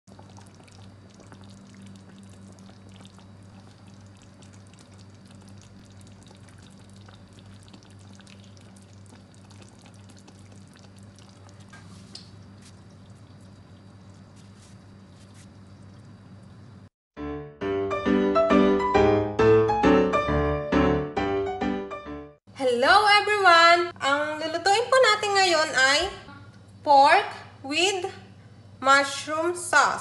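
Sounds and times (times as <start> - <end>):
sauce dripping: 0.1 - 16.8
steady low hum: 0.1 - 16.9.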